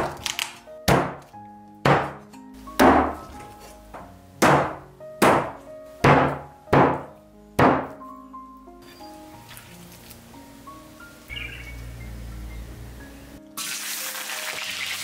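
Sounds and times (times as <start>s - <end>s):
background music: 0.0s - 15.0s
cleaver chopping on wooden block: 0.9s - 3.4s, 4.4s - 8.0s.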